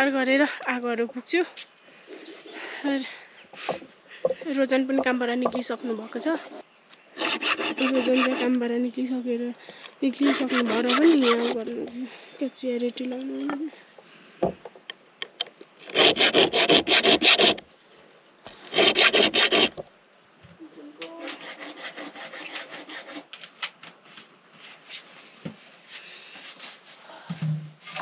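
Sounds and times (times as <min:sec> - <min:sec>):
fast rasping scraping strokes: 0:06.1 - 0:06.6, 0:07.2 - 0:08.6, 0:10.2 - 0:11.7, 0:15.8 - 0:17.6, 0:18.5 - 0:19.8, 0:21.2 - 0:23.3.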